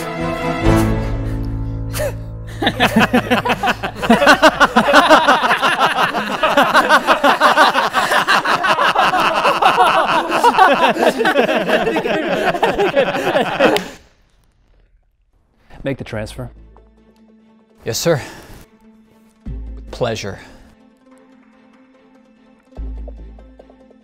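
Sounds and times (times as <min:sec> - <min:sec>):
men laughing loudly: 0:02.0 - 0:14.0.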